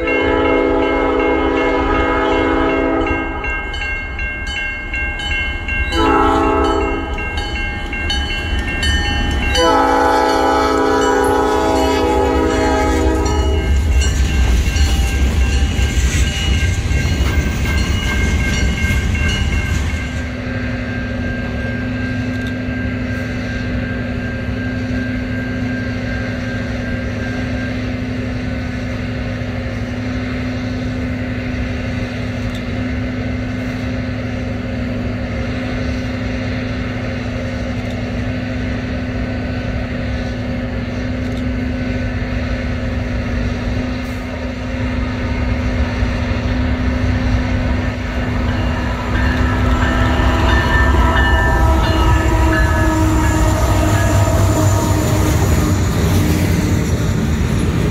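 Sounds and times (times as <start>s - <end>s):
locomotive horn blasts: 0.0s - 3.5s, 5.9s - 7.2s, 9.5s - 13.9s, 48.0s - 55.9s
locomotive rumble: 0.0s - 57.9s
train wheels on rails: 0.0s - 57.9s
low engine drone: 25.7s - 57.9s.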